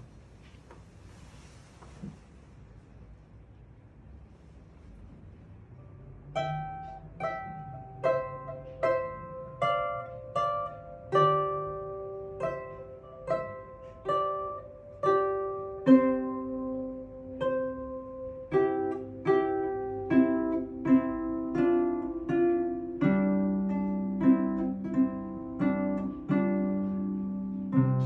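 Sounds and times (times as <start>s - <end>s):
harp melody: 6.2s - 28.0s.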